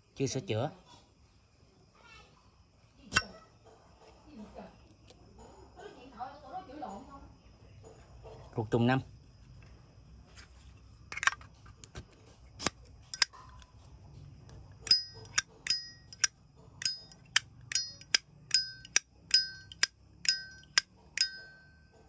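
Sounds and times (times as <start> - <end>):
lighter lid clicking open and shut: 12.6 - 13.3, 14.8 - 21.4.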